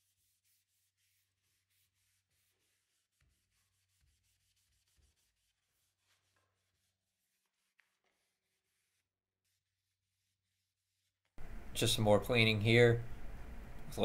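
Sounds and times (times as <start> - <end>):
towel scrubbing wood: 0.0 - 9.6.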